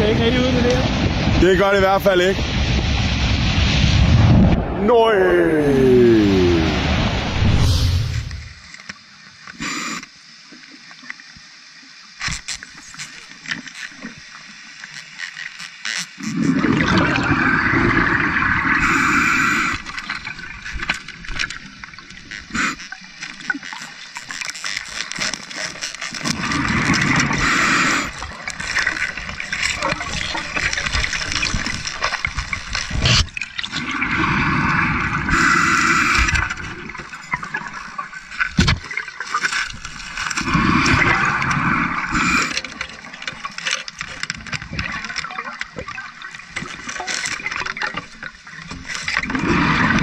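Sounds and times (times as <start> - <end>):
underwater water noise: 0.0 - 50.0
underwater bubbles gurgling: 16.1 - 50.0.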